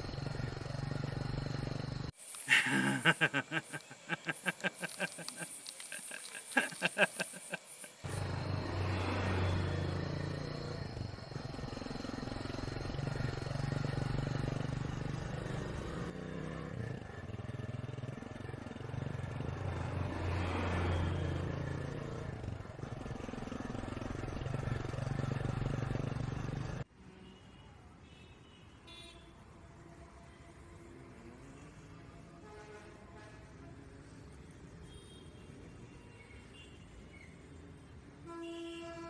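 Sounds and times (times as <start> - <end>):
road noise: 0.0 - 28.0.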